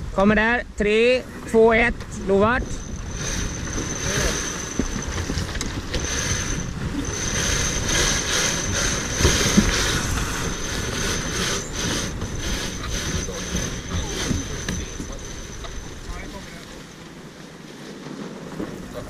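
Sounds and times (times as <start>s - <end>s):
wind buffeting microphone: 0.0s - 19.0s
thin high whine: 2.1s - 16.7s
water rushing past hull: 2.1s - 19.0s.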